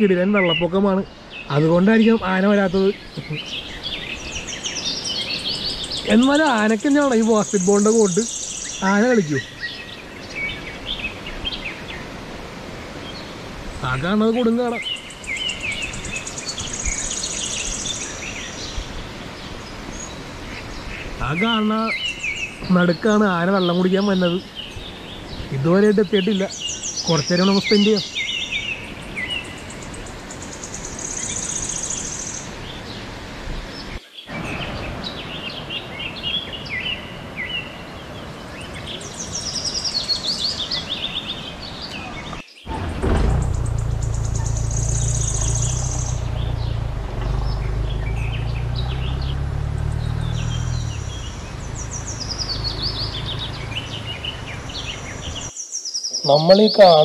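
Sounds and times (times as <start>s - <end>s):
running water hiss: 0.0s - 36.7s, 37.9s - 55.7s
birds chirping in trills: 0.0s - 57.0s
strong low rumble: 42.7s - 55.5s.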